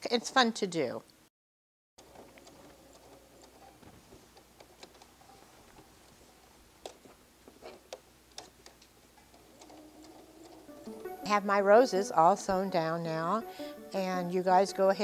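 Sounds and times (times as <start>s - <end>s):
sewing machine humming: 2.0s - 4.9s, 9.3s - 11.4s.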